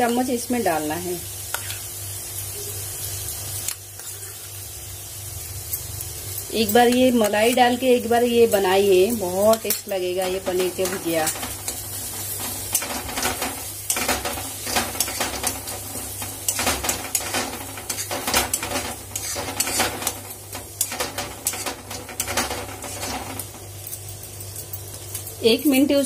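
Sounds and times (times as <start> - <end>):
light sizzle: 0.0 - 26.0
metal spatula scraping pan: 9.5 - 23.6.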